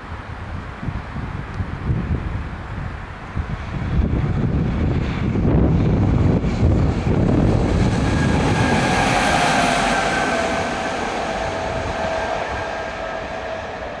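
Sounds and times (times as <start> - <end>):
locomotive high whine: 0.0 - 14.0
locomotive wheels rumbling on rails: 2.8 - 14.0.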